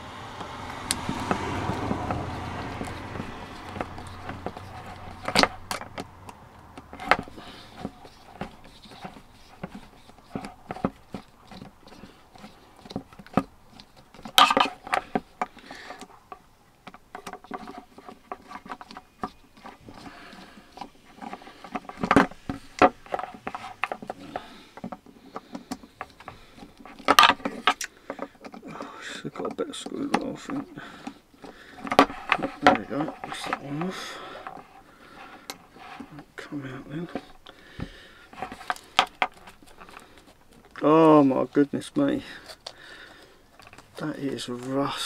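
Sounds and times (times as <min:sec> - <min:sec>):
screwdriver clicks and scrapes: 0:02.3 - 0:36.2.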